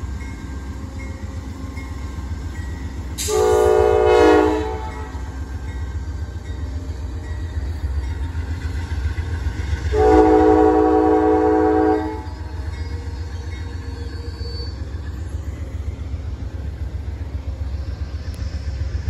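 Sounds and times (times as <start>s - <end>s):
moving train rumble: 0.0s - 19.0s
locomotive horn blast: 3.2s - 5.3s, 9.9s - 12.3s.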